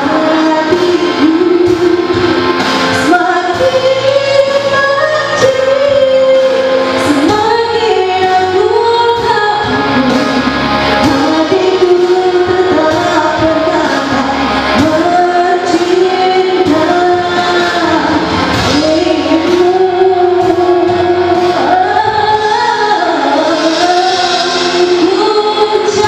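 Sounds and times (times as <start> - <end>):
backing music with steady beat: 0.0 - 26.0
woman singing slow melody: 0.0 - 26.0.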